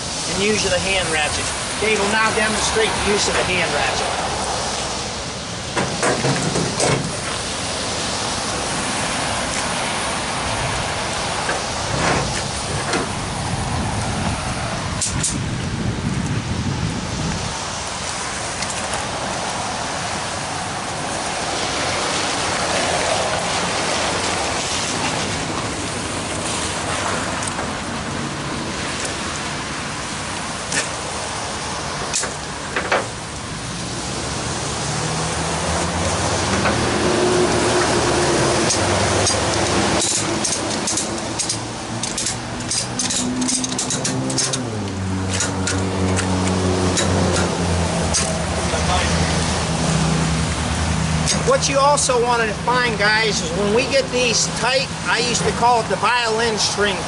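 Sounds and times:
steady rain falling: 0.0s - 43.6s
ratchet strap clicking: 38.7s - 44.6s, 45.3s - 47.5s.

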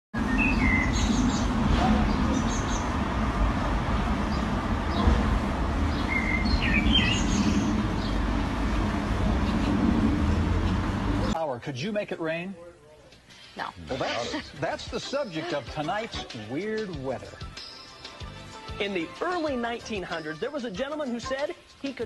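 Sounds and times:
bird chirps: 0.2s - 2.9s, 5.9s - 8.2s
steady low rumble: 0.2s - 11.4s.

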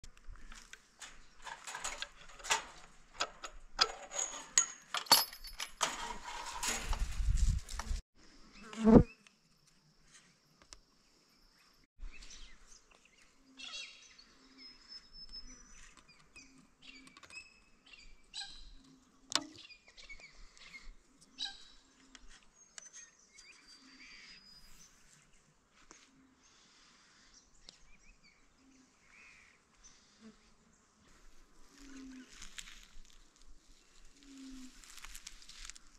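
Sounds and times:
birds chirping and whistling: 13.6s - 18.9s.

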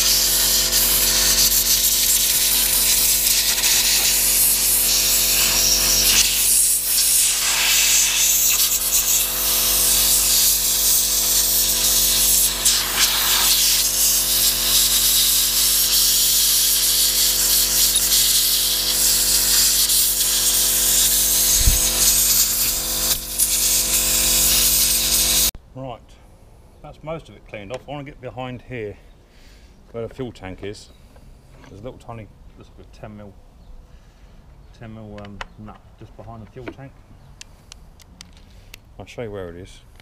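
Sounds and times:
compressed air hissing: 0.0s - 25.5s.

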